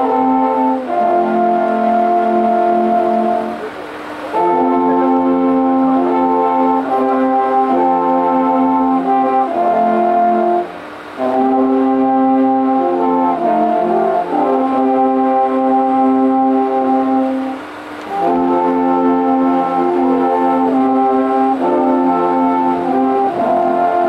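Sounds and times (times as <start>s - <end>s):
alphorns playing chords: 0.0s - 24.0s.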